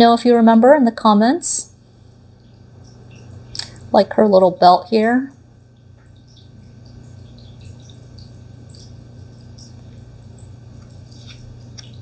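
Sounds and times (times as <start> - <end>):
steady low hum: 0.0 - 12.0
playing cards being handled: 10.8 - 12.0.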